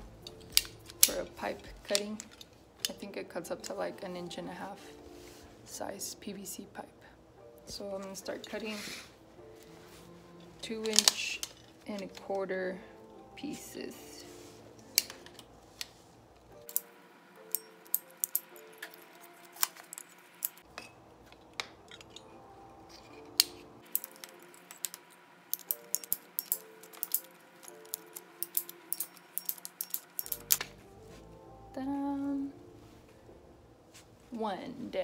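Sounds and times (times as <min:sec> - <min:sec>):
faint background music: 0:00.0 - 0:35.0
ratcheting pipe cutter clicking: 0:17.5 - 0:19.0, 0:23.2 - 0:30.7.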